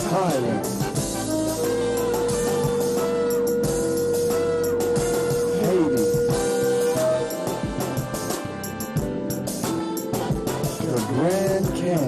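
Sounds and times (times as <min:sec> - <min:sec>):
shofar long steady note: 0:00.8 - 0:10.0
falling sliding note: 0:01.3 - 0:08.6.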